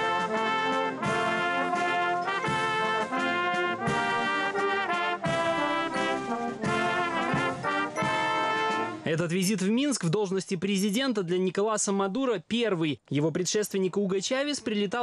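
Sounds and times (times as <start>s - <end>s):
military brass band playing chords: 0.0s - 9.0s.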